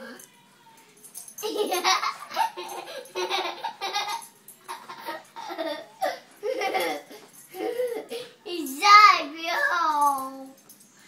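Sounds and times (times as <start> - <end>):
boy laughing: 1.4 - 8.2.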